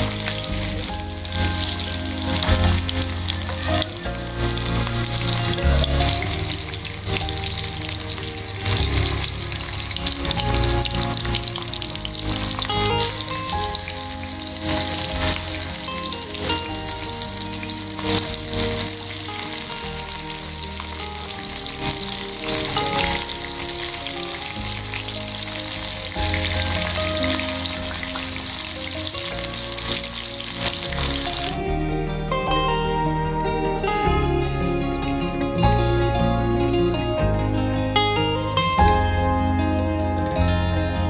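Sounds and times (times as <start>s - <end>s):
fish deep-frying in oil: 0.0s - 31.6s.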